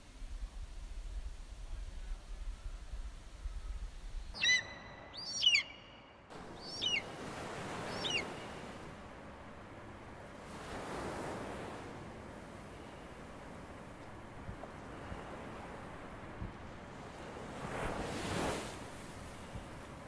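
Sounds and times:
gulls calling: 0:04.3 - 0:08.8
surf washing: 0:05.4 - 0:20.0.

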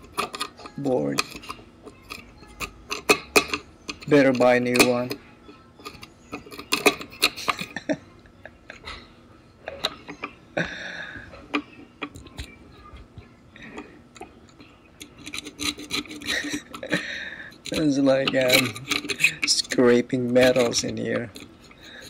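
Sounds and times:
scissor blades scraping circuit board: 0:15.0 - 0:16.9
small metal clicks: 0:17.6 - 0:22.0.

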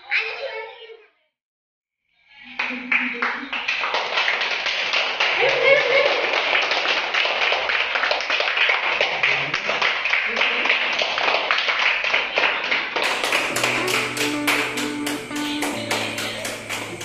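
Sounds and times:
people clapping: 0:02.4 - 0:17.0
plucked-string music: 0:13.1 - 0:17.0
voices: 0:13.1 - 0:17.0.

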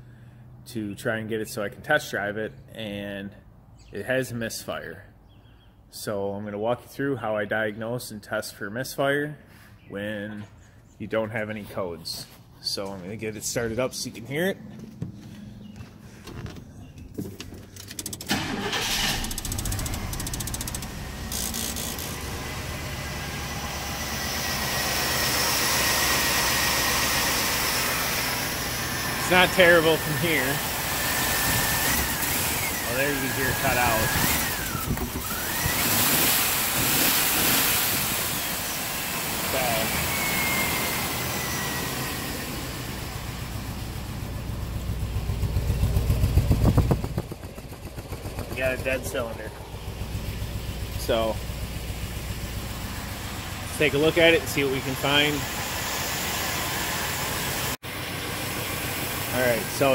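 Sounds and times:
truck engine cranking and idling: 0:12.8 - 0:59.9
hiss: 0:35.3 - 0:42.0.

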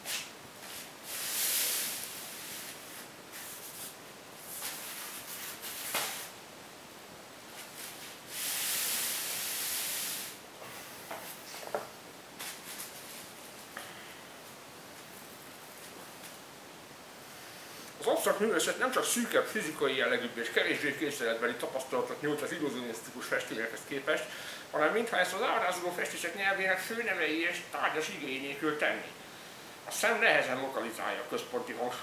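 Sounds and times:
hissing bursts: 0:01.0 - 0:06.3, 0:07.8 - 0:10.4.

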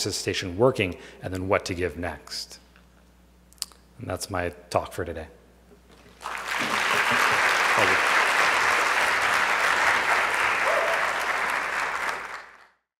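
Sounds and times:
audience applauding: 0:06.1 - 0:12.8.

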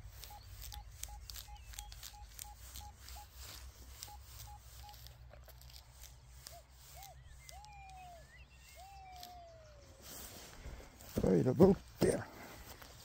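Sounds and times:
metal detector short beeps: 0:00.0 - 0:10.0.

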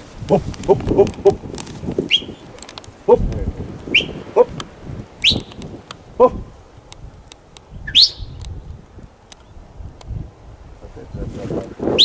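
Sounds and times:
low pulsed bird calls: 0:02.0 - 0:03.2, 0:03.9 - 0:04.6, 0:05.2 - 0:06.7, 0:07.6 - 0:08.5
loud rising bird chirps: 0:02.1 - 0:02.5, 0:03.9 - 0:04.2, 0:05.2 - 0:05.6, 0:07.7 - 0:08.4.

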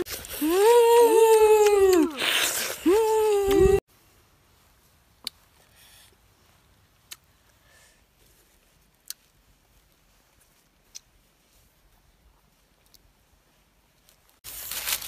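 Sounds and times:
faint rustle: 0:03.9 - 0:15.0.

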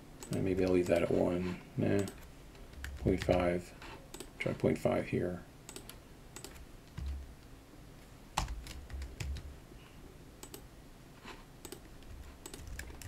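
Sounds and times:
keyboard keys clicking: 0:02.0 - 0:03.5, 0:05.7 - 0:07.2, 0:08.4 - 0:09.5, 0:11.6 - 0:13.0.

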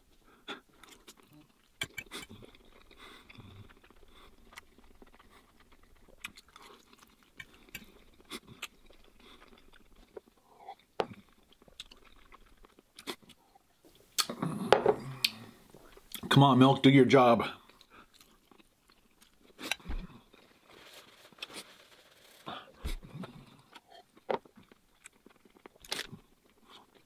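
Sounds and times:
wet chewing sounds: 0:00.2 - 0:13.6, 0:17.7 - 0:20.5, 0:22.8 - 0:27.0.

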